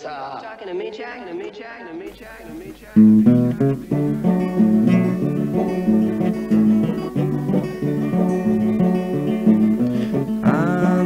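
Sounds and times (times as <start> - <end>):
acoustic guitar playing: 2.1 - 11.0.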